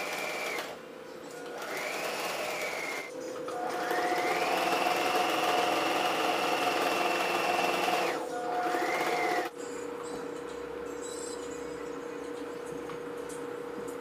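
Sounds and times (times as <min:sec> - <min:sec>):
sewing machine motor whine: 0:00.0 - 0:00.8, 0:01.6 - 0:09.5.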